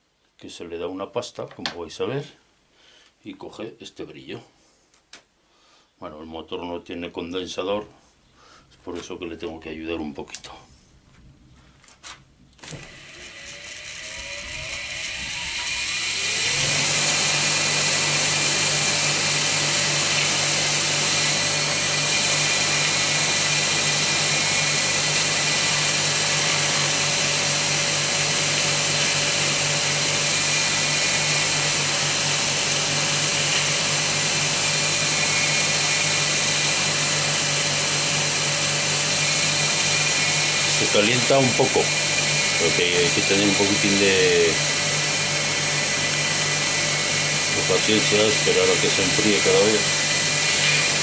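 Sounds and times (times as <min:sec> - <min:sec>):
electric motor whining and humming: 0:12.6 - 0:51.0.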